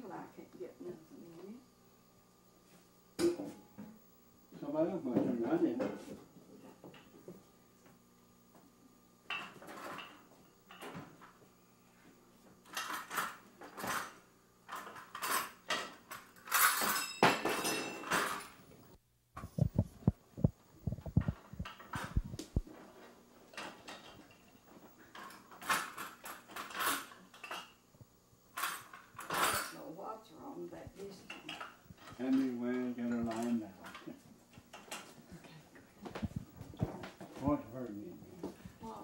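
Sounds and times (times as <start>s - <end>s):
dishes clattering and clinking: 9.3s - 11.4s, 12.7s - 18.6s, 21.0s - 27.8s, 28.6s - 29.8s, 31.3s - 35.2s
low thumps: 19.4s - 22.7s.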